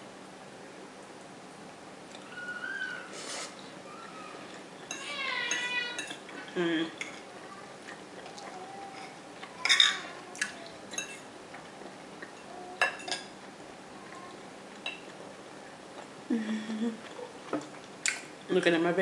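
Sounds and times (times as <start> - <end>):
cutlery clinking on a plate: 4.8 - 6.2, 9.0 - 10.1, 10.9 - 11.3, 12.4 - 13.3.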